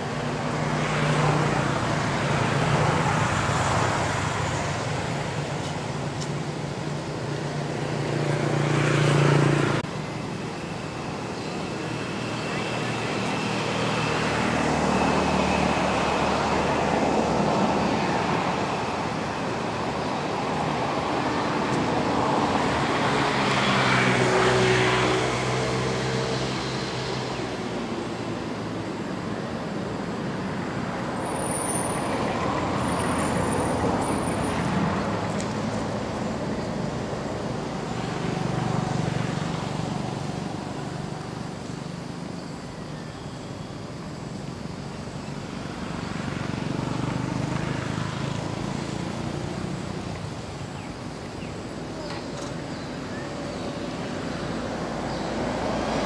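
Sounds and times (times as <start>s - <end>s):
vehicles passing: 0.0s - 56.0s.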